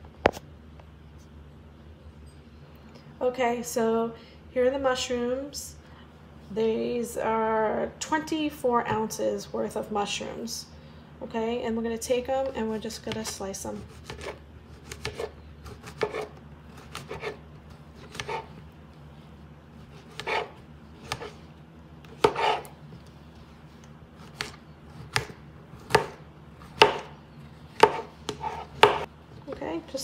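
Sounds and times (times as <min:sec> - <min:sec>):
knife slicing mushrooms on board: 0:13.1 - 0:17.4, 0:18.0 - 0:18.5, 0:19.9 - 0:21.4, 0:22.1 - 0:22.7, 0:24.2 - 0:27.1, 0:27.7 - 0:29.1.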